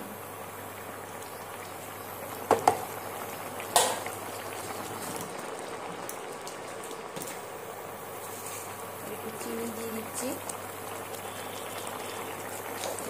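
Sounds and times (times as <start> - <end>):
gravy simmering and bubbling: 0.0 - 13.0
spatula knocking on pan: 2.5 - 2.8.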